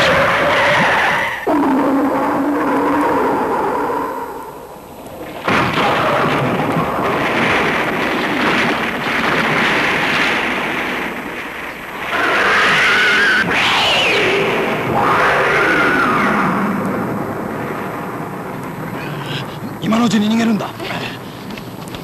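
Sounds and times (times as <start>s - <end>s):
blast and rumbling rockfall: 5.1s - 22.0s.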